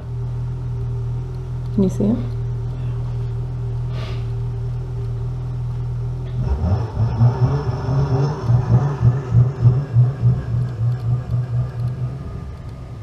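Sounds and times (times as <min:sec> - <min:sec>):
snowmobile engine revving: 0:06.4 - 0:12.2.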